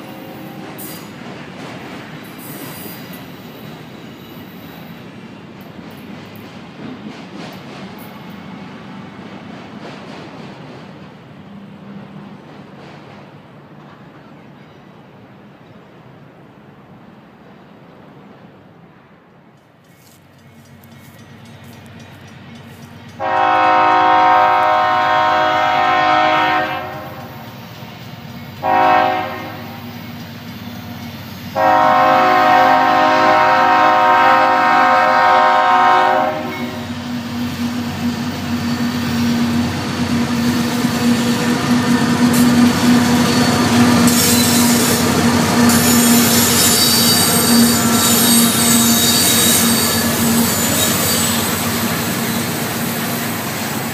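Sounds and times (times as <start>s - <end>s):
train wheels on rails: 0.0s - 53.9s
locomotive air horn blasts: 23.2s - 27.3s, 28.6s - 29.8s, 31.6s - 36.8s.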